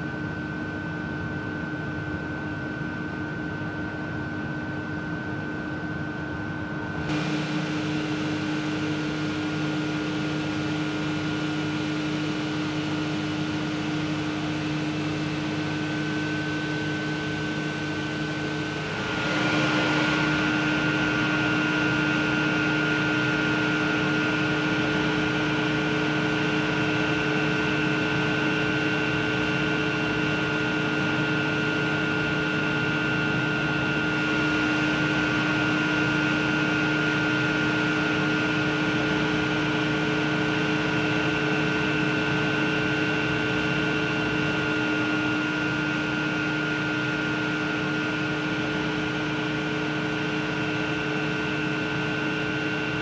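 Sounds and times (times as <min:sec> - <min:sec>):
turbine generator hum: 0:05.6 - 0:53.0
rushing water and air: 0:18.4 - 0:22.8.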